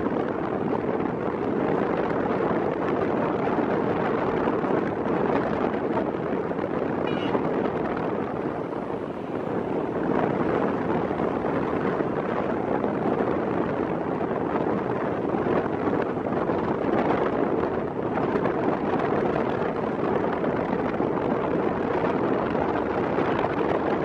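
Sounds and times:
wind: 0.0s - 24.0s.

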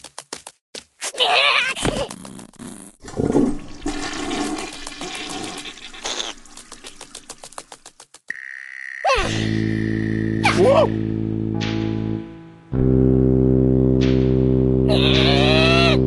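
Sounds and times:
music: 9.2s - 16.0s.

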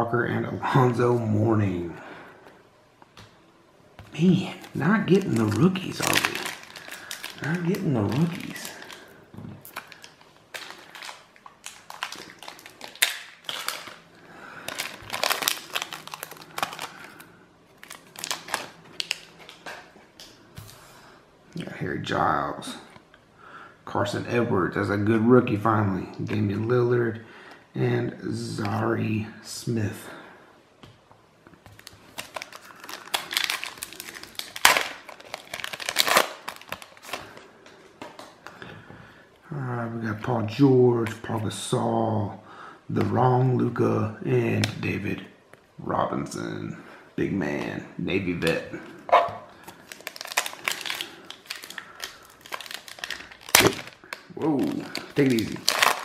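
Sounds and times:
foil wrapper crinkling: 4.1s - 20.4s, 31.7s - 38.4s, 49.2s - 56.0s.

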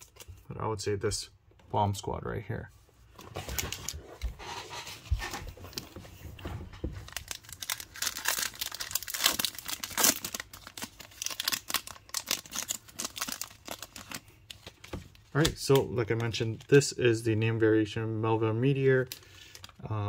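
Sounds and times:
wrapper crinkling and tearing: 7.0s - 16.9s, 18.7s - 19.9s.

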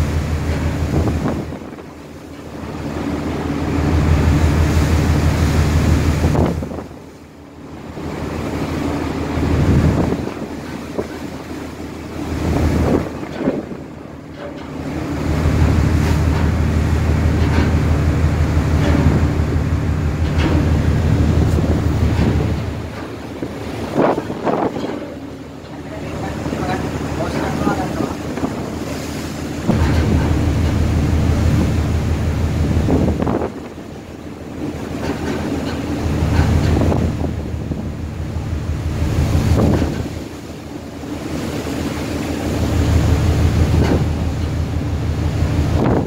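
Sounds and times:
wind buffeting microphone: 0.0s - 7.1s, 8.2s - 14.0s, 15.0s - 40.6s, 41.2s - 46.0s
sea rushing: 0.0s - 46.0s
low steady drone: 24.2s - 33.2s.

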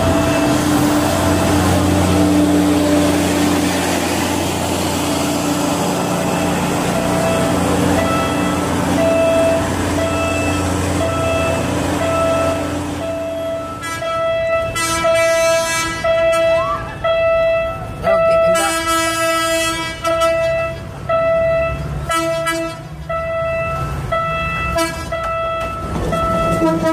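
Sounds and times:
train rumbling past: 0.0s - 26.9s
level-crossing alarm beeping: 4.9s - 18.9s, 20.4s - 21.9s, 23.1s - 26.9s.

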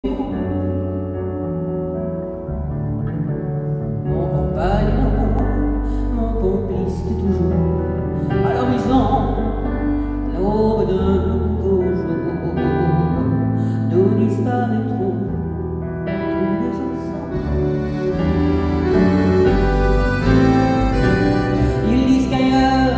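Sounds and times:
woman singing: 0.0s - 1.1s, 4.1s - 15.5s, 16.2s - 17.5s, 21.5s - 22.9s
band accompaniment: 17.2s - 22.9s.

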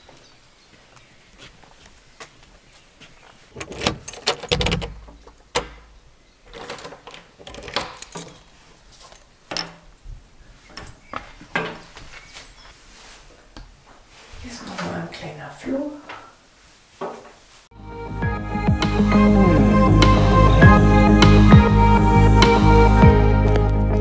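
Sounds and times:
keys jangling: 3.6s - 5.1s, 6.6s - 9.3s
key clicking in lock: 3.6s - 5.8s, 7.0s - 8.4s.

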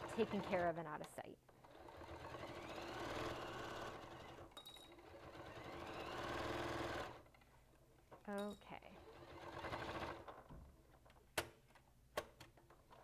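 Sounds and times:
sewing machine stitching: 0.0s - 0.8s, 1.6s - 7.3s, 9.0s - 10.4s.

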